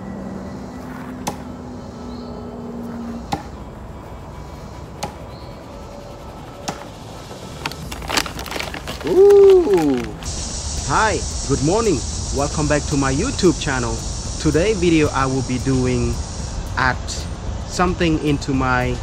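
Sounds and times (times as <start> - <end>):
paper bag crinkling: 7.2 - 10.3.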